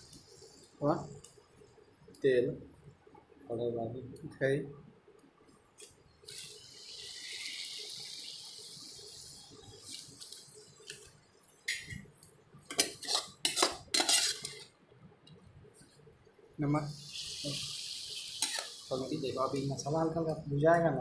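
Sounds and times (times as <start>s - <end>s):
vegetables sizzling in oil: 0.0s - 1.7s, 5.8s - 14.8s, 16.7s - 20.4s
spoon scraping and knocking pan: 12.6s - 14.7s, 18.4s - 18.8s.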